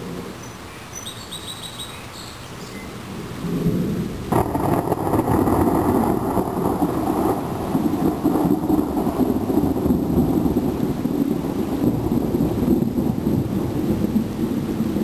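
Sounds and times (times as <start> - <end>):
thunder rumbling: 3.4 - 15.0.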